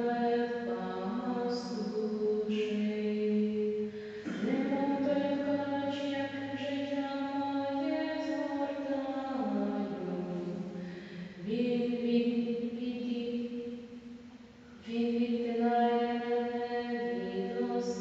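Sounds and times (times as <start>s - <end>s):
voices singing liturgical chant: 4.2s - 6.0s.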